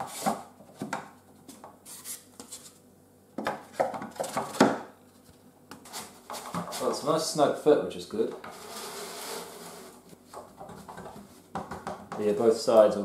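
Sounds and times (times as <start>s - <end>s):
wood scraping and rubbing: 8.4s - 11.3s.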